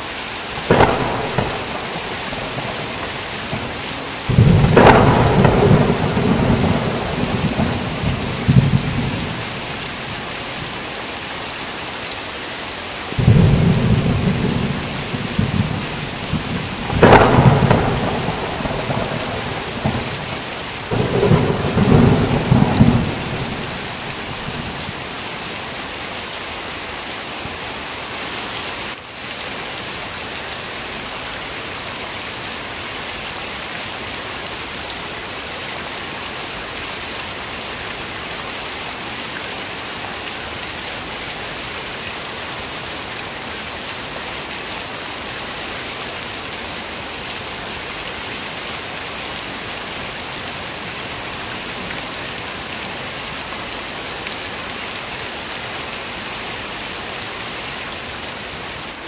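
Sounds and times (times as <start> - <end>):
heavy rain: 0.0 - 59.0
thunder rumbling: 0.6 - 10.0, 13.2 - 25.2.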